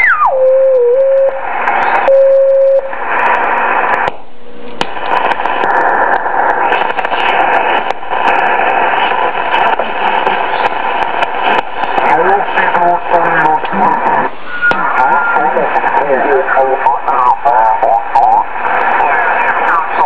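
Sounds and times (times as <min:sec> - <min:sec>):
radio beat-note whistle: 0:00.0 - 0:03.4, 0:13.3 - 0:16.6
faint radio signals: 0:00.0 - 0:20.0
radio static hiss and crackling: 0:00.0 - 0:20.0.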